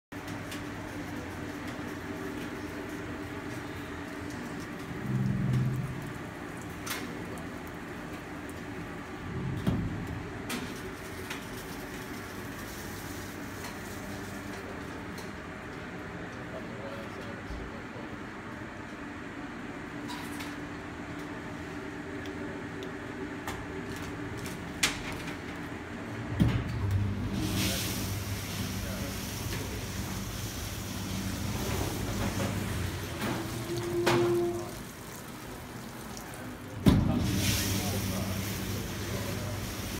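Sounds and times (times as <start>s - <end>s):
dishwasher water spraying: 27.0s - 39.9s
water spray hiss: 37.1s - 39.9s.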